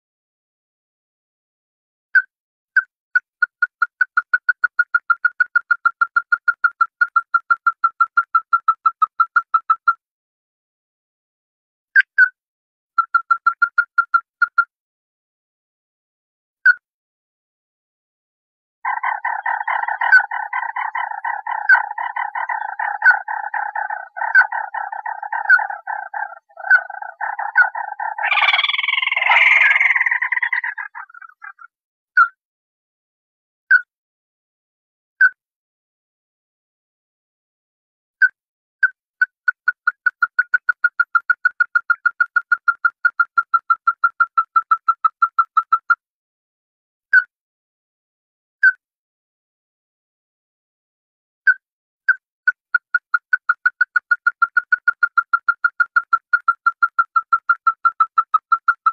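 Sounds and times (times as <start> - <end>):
crake calling: 18.8 - 31.7.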